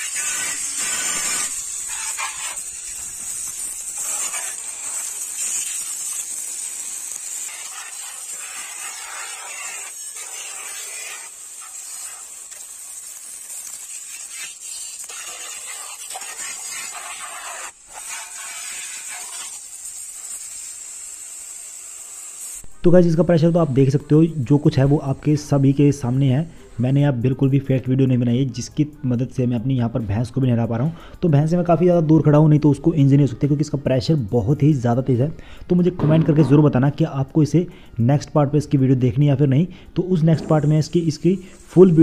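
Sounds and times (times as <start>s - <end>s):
water jet spraying: 0.0s - 20.5s, 40.2s - 42.0s.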